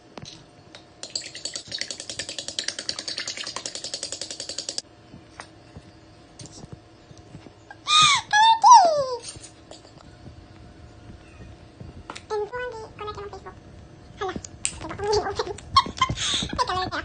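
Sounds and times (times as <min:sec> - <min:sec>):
fork beating eggs in bowl: 0:01.0 - 0:04.8.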